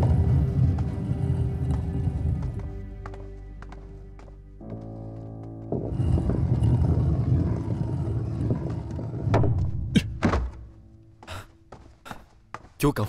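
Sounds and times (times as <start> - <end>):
wheelchair wheels rolling on hard floor: 5.5 - 9.8.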